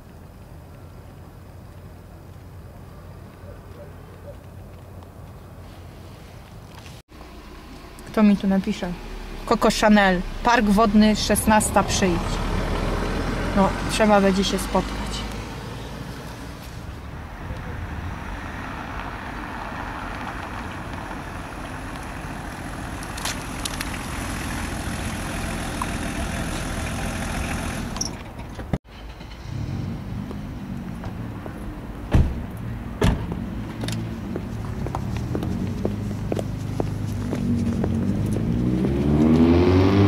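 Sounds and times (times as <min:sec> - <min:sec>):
car driving slowly on pavement: 0:00.0 - 0:40.0
car engine idling: 0:07.1 - 0:15.2, 0:15.8 - 0:28.3
car doors shutting: 0:32.1 - 0:34.0.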